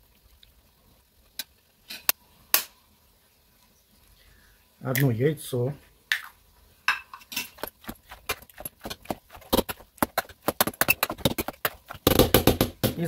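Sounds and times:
potato masher knocking and squelching: 0:07.5 - 0:13.0.

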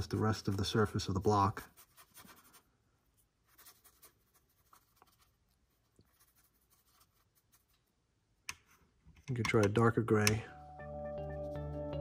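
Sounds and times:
small brush scratching plaster: 0:00.0 - 0:08.1.

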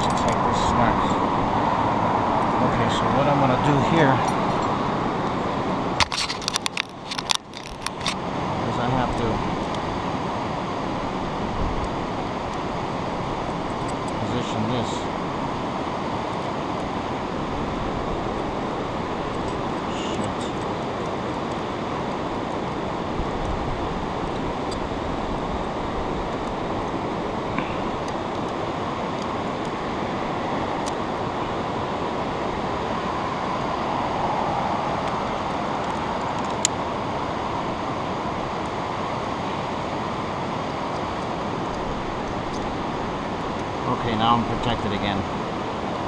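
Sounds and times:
river rushing: 0:00.0 - 0:46.0
metal climbing gear clicking: 0:06.0 - 0:08.2.

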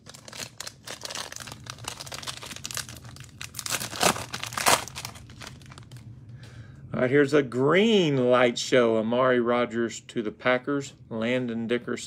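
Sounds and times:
foil pack crinkling: 0:00.0 - 0:06.0
foil pack ripping open: 0:00.0 - 0:06.0.

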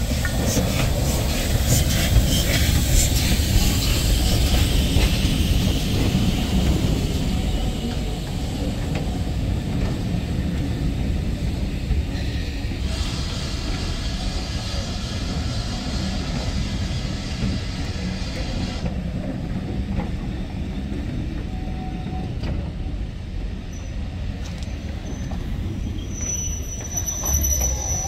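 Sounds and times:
hiss: 0:00.0 - 0:08.8, 0:11.5 - 0:18.9
train wheels rumbling on rails: 0:00.0 - 0:28.0
high-pitched wheel squeal: 0:24.8 - 0:28.0.

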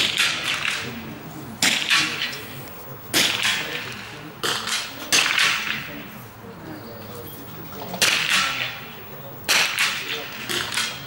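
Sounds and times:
rifle shots with echo: 0:00.0 - 0:02.5, 0:03.1 - 0:06.0, 0:08.0 - 0:08.9, 0:09.5 - 0:11.0.

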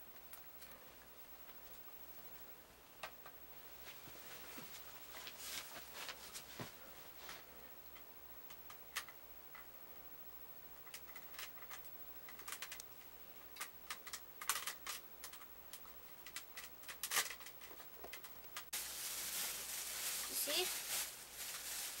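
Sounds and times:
plastic toy pieces clicking together: 0:10.9 - 0:12.9, 0:13.6 - 0:18.3.

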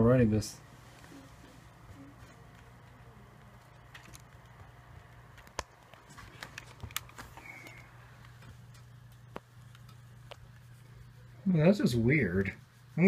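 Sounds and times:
low steady hum: 0:00.0 - 0:13.0
faint clicks and taps: 0:01.0 - 0:10.8.

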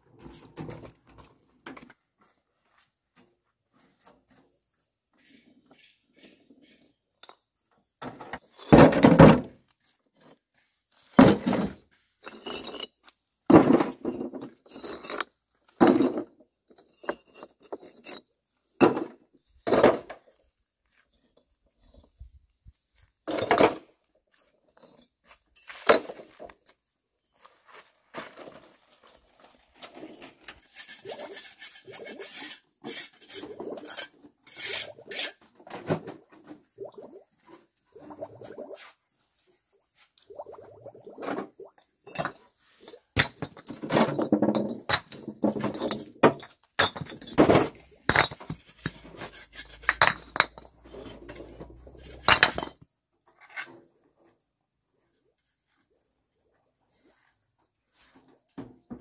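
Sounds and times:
bricks clunking into metal wheelbarrow: 0:13.5 - 0:20.3, 0:43.2 - 0:52.9.

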